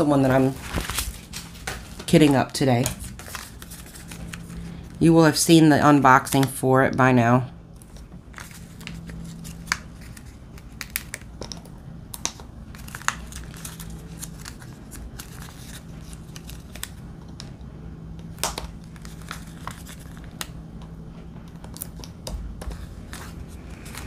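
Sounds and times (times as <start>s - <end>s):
faint steady hum: 0.0s - 24.0s
sticker labels peeling crinkles: 7.8s - 17.5s, 18.2s - 20.6s, 21.6s - 24.0s.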